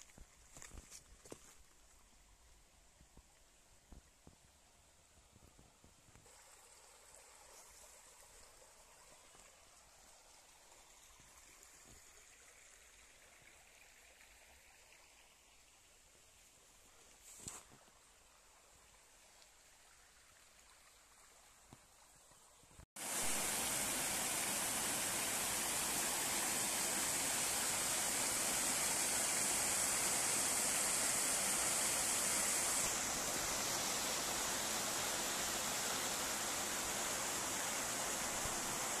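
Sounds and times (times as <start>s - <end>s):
stream water rushing over rocks: 23.0s - 39.0s.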